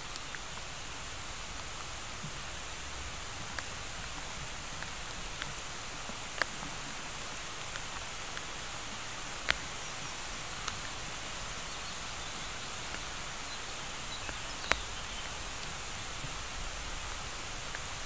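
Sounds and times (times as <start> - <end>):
rain hissing: 0.0 - 18.0
faint ticks: 3.4 - 11.0, 11.7 - 18.0.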